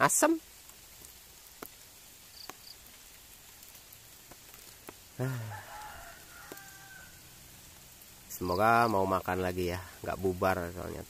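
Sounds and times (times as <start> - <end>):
steady rain: 0.0 - 11.0
dripping ticks: 0.4 - 10.4
low falling voice: 5.2 - 5.7
faint drawn-out call: 5.2 - 7.4.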